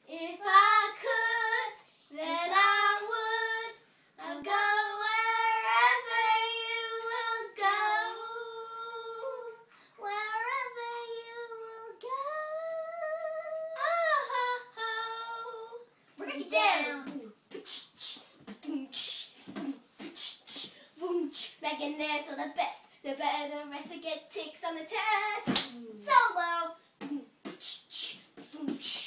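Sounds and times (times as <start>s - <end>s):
girls singing unaccompanied: 0.0s - 17.2s, 23.6s - 26.7s.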